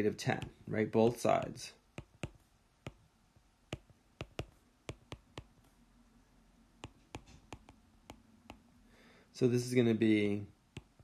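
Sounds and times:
pen tip tapping: 1.4s - 3.0s, 3.7s - 5.7s, 6.8s - 8.6s.

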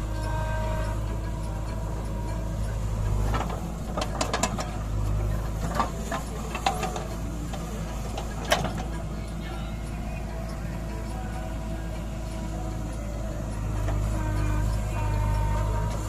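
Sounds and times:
diesel engine running: 0.0s - 16.0s
soil clattering into steel trolley: 3.2s - 9.0s.

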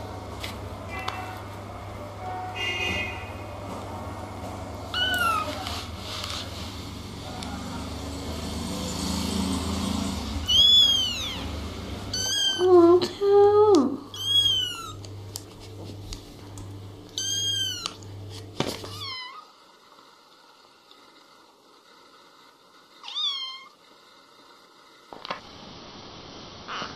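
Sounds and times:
kittens mewing: 4.9s - 5.7s, 10.4s - 15.0s, 17.2s - 18.0s.

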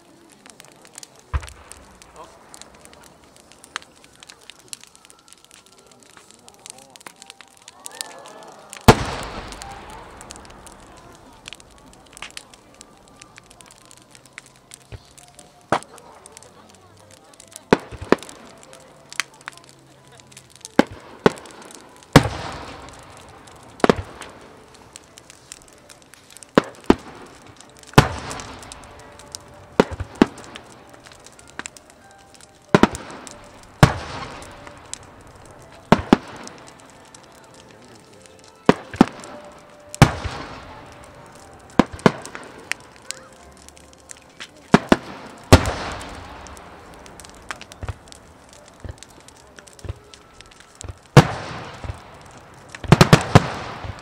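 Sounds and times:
fireworks bursting with bangs: 0.0s - 54.0s.

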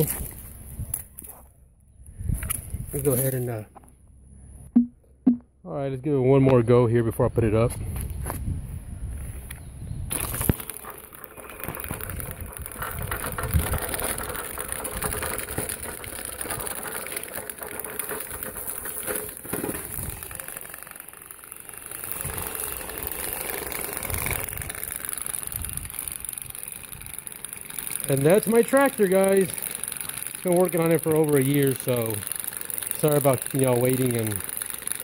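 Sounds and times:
electric drive motors: 9.2s - 35.0s.

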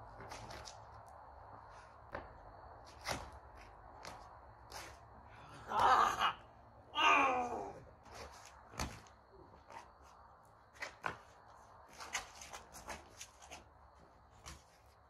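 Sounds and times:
sneakers shuffling on concrete: 0.0s - 5.4s, 7.9s - 15.0s.

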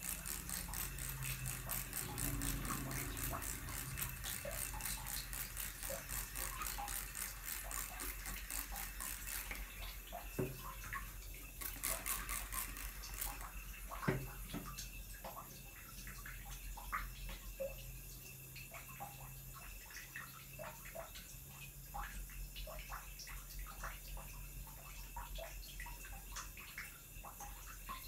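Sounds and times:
spray bottle squirts: 11.5s - 14.6s.

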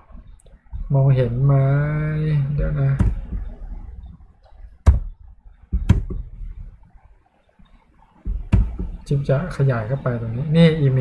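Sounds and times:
faint room noise: 0.0s - 11.0s
sharp clicks with dull thump: 2.6s - 3.6s, 4.8s - 6.4s, 8.2s - 9.0s.

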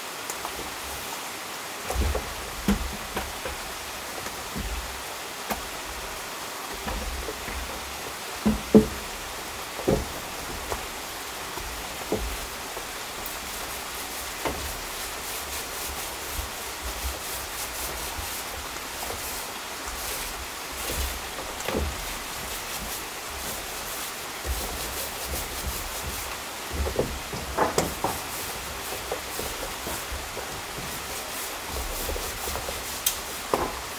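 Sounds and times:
steady hiss: 0.0s - 33.9s
paint roller rubbing on wood: 5.6s - 33.9s.

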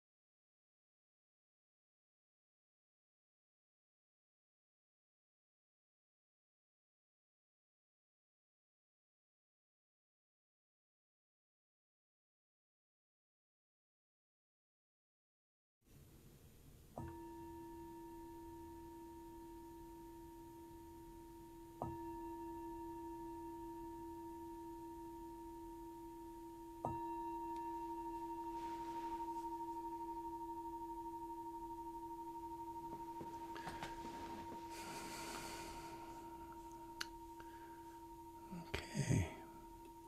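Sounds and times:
meditation bell ringing: 17.0s - 40.0s.

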